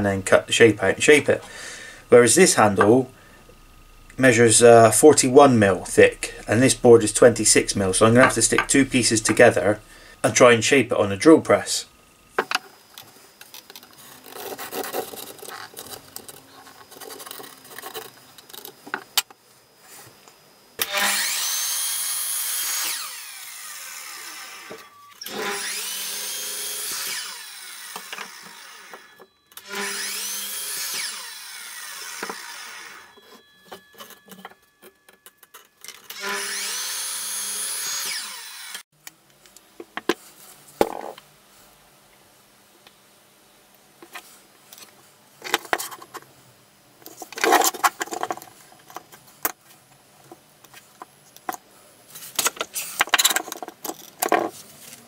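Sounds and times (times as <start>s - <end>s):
mitre saw whining and cutting wood: 1.4s - 10.8s, 20.8s - 34.4s, 36.1s - 38.9s.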